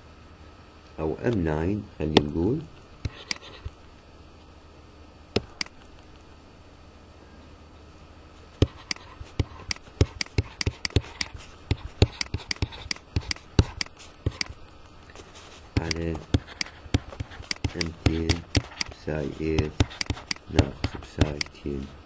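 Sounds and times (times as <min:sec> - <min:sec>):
stylus clicking on tablet screen: 0:08.6 - 0:14.6, 0:15.8 - 0:19.0, 0:19.6 - 0:21.6.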